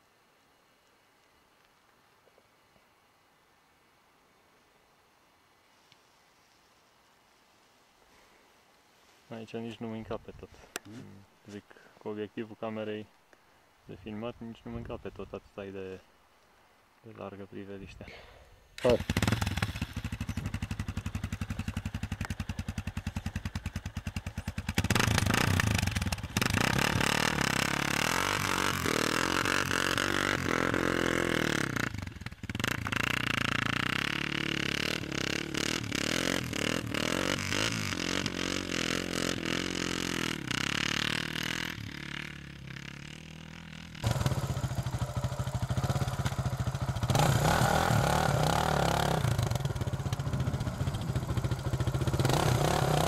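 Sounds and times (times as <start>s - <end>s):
motorcycle engine revving: 18.8s - 53.0s.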